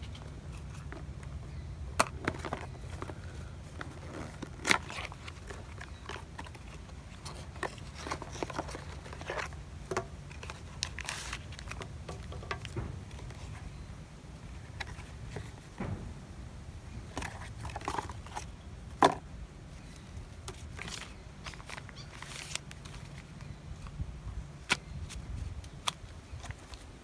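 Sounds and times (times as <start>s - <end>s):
steady low hum: 0.0s - 27.0s
cardboard taps scrapes and rustles: 2.0s - 13.8s.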